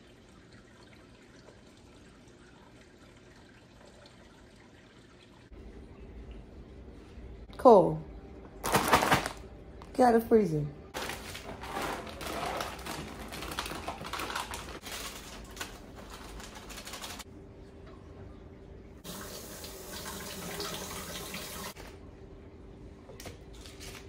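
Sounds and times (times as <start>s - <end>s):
kitchen clicking and clattering: 11.0s - 17.2s.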